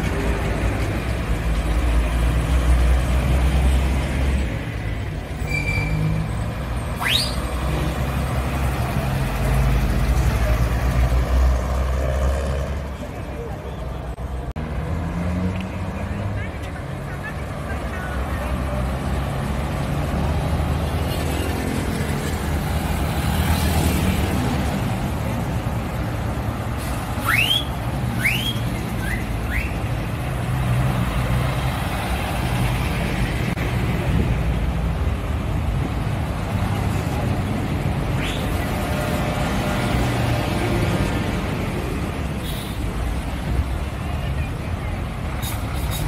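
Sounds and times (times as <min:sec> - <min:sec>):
buses and traffic rumbling: 0:00.0 - 0:46.0
rising whistles: 0:07.0 - 0:07.6, 0:27.2 - 0:29.8.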